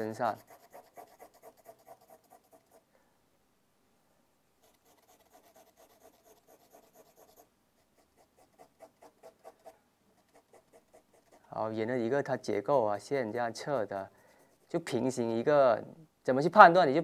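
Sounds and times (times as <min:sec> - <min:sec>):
pencil scratching on paper: 0:00.0 - 0:02.8, 0:04.6 - 0:11.6, 0:13.5 - 0:15.0.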